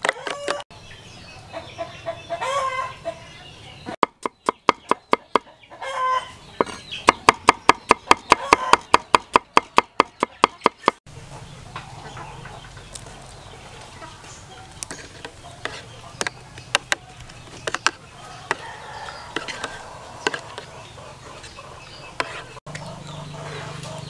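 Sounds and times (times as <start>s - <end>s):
knife chopping on wooden board: 6.6s - 11.0s, 19.4s - 20.7s.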